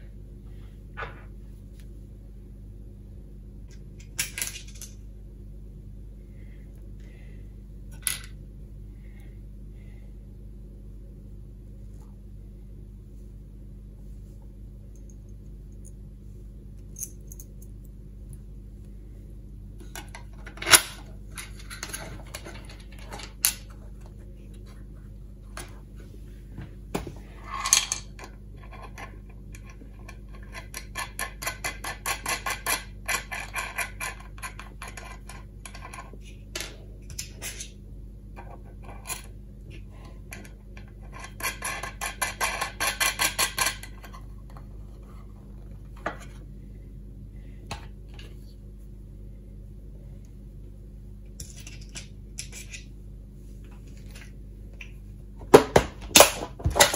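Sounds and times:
faint steady hum: 0:00.0 - 0:56.9
nuts and bolts clicking and rattling: 0:03.7 - 0:05.0, 0:19.8 - 0:24.2, 0:27.4 - 0:37.8, 0:40.2 - 0:44.8.

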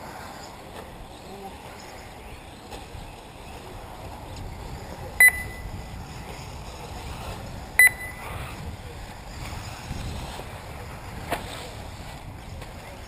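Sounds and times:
short high electronic beeps: 0:05.2 - 0:05.7, 0:07.8 - 0:08.2.

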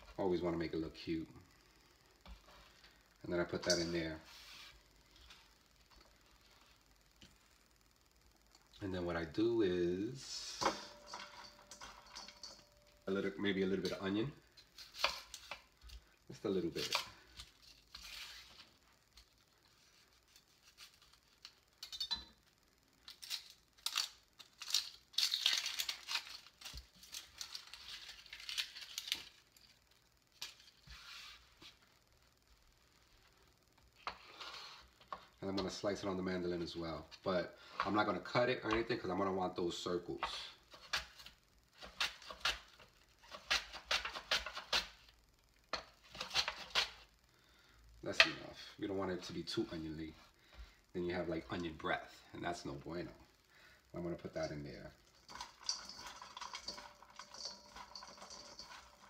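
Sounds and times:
onion skin crackling as peeled: 0:13.9 - 0:31.4.

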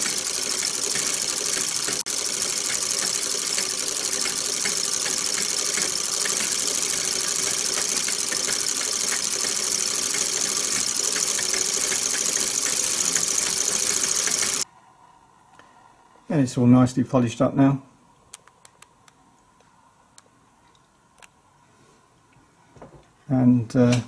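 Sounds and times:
film projector rattling: 0:00.0 - 0:14.6.

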